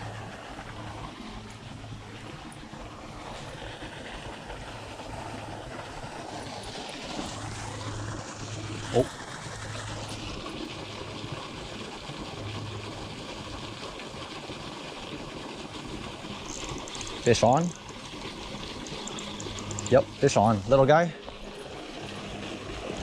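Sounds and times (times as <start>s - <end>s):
river flowing over rocks: 0.0s - 23.0s
low hum: 15.8s - 23.0s.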